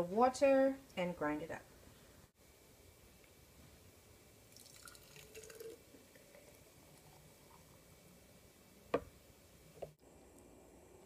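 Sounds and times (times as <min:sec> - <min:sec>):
smoothie dripping into a jar: 0:04.6 - 0:07.2.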